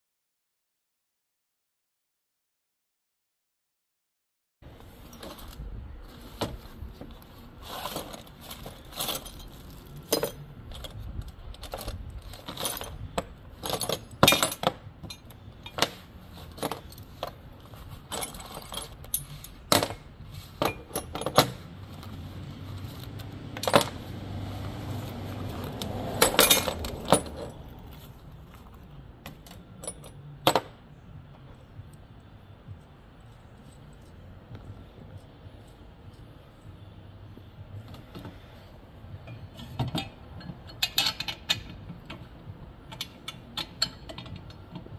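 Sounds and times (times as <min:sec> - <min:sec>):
parts clicking and clinking: 0:04.9 - 0:32.1, 0:39.2 - 0:44.9.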